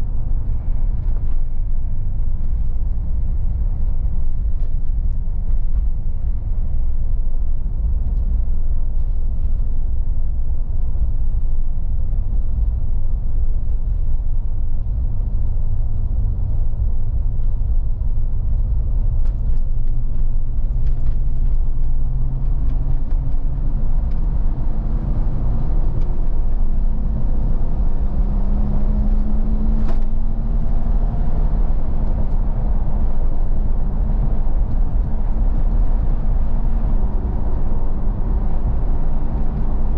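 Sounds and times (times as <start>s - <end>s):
road and tyre rumble: 0.0s - 39.9s
car engine accelerating: 18.5s - 39.9s.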